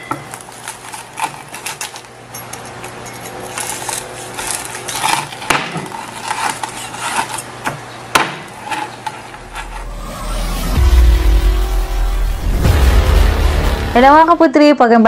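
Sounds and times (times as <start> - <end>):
crispy skin crackling under knife: 0.2 - 9.4
low whoosh: 9.4 - 14.4.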